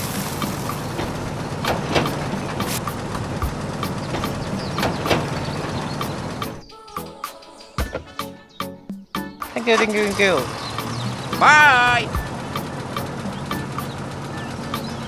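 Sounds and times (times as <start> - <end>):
tracks rattling clicks: 0.0 - 6.7, 9.4 - 15.0
music: 0.0 - 15.0.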